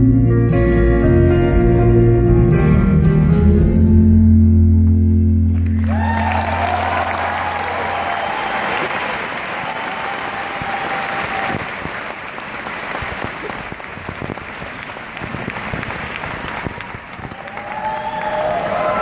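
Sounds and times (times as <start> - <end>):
audience applauding: 5.5 - 19.0
faint cheering voices: 5.8 - 12.1, 16.6 - 19.0.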